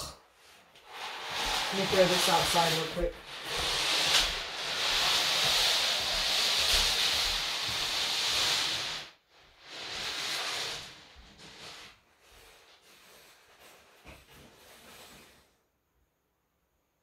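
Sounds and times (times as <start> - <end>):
steady hiss: 0.8 - 11.8.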